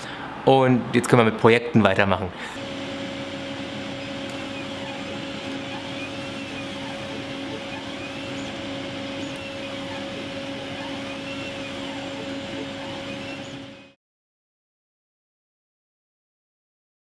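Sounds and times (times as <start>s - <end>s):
fans and pump whirring: 2.3s - 14.0s
faint motor whine: 2.4s - 14.0s.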